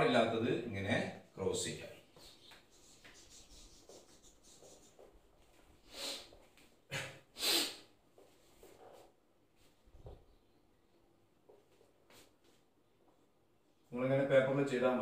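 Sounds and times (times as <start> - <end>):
duster wiping whiteboard: 2.2 - 5.7.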